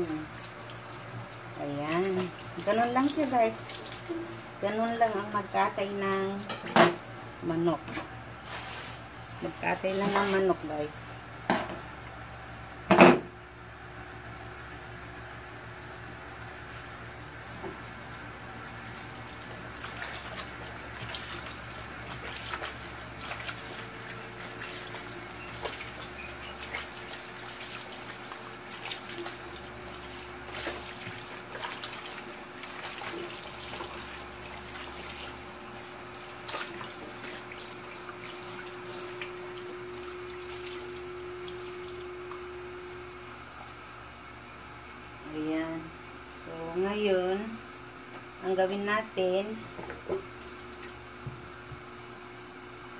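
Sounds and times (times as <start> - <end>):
hands washing chicken: 0.0 - 11.0, 16.6 - 44.2
tap water splashing into sink: 18.9 - 42.5, 49.8 - 51.9.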